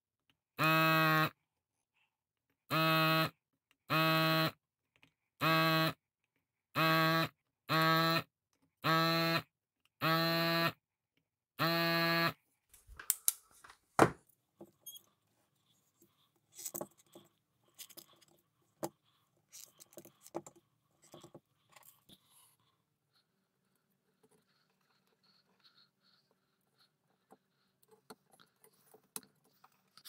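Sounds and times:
clicks and scrapes of handling: 14.6s - 22.6s, 27.2s - 30.0s.

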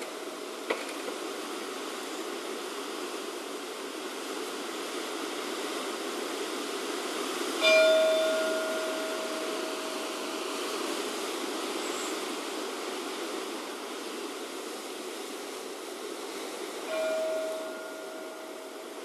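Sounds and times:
wind rushing in trees: 0.0s - 19.0s
church bell stroke: 7.6s - 10.6s, 16.9s - 18.9s.

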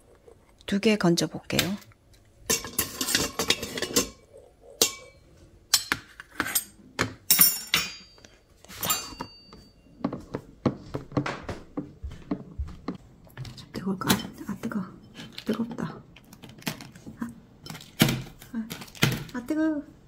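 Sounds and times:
ladle clinking against metal pot: 2.5s - 4.2s, 4.8s - 6.6s.

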